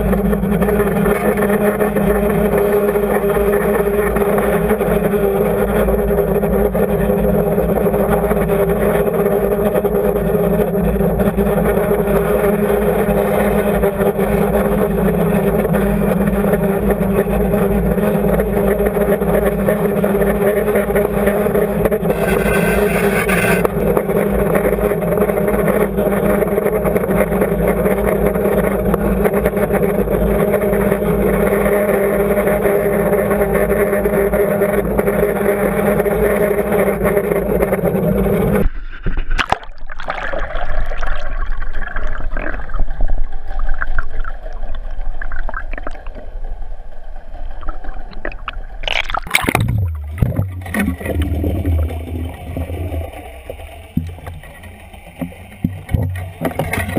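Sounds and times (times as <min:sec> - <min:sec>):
boat engine drone underwater: 0:00.0 - 0:56.9
water gurgling and splashing: 0:39.3 - 0:46.4, 0:47.4 - 0:56.9.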